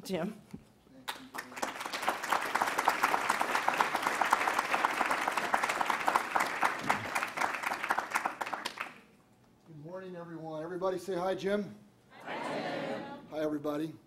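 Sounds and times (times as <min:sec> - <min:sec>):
audience applauding: 0:01.1 - 0:09.1.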